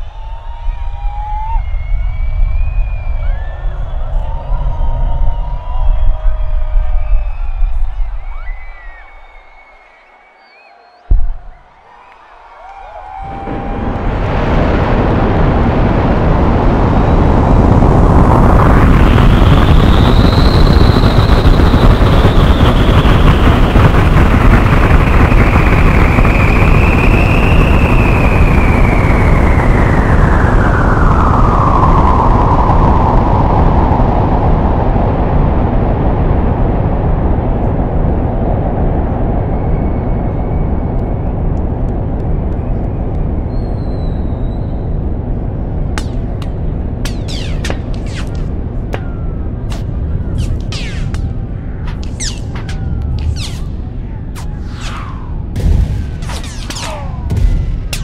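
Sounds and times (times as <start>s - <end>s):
deep continuous rumble: 0.0s - 10.2s, 11.1s - 58.0s
whooshing sweep: 45.9s - 58.0s.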